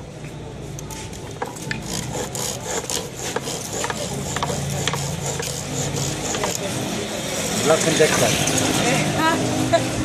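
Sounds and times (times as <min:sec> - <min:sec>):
chisel scraping wood on lathe: 0:01.2 - 0:08.8.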